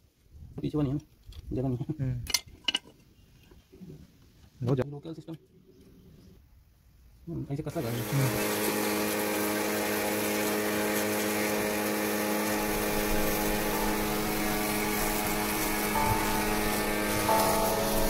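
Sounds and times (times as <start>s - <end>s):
pressure washer motor hum: 7.8s - 18.0s
water jet hissing: 10.2s - 18.0s.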